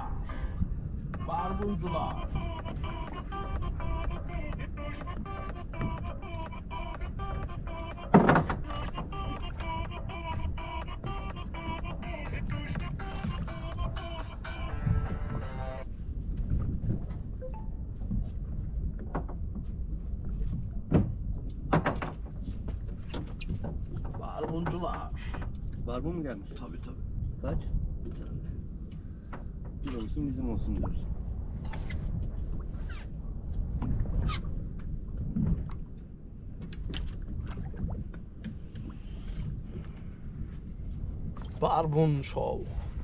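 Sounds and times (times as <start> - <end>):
low steady rumble: 0.0 - 23.1, 23.7 - 43.0
sharp knocks and clicks on boat: 4.0 - 14.3, 18.9 - 25.8, 33.6 - 39.0.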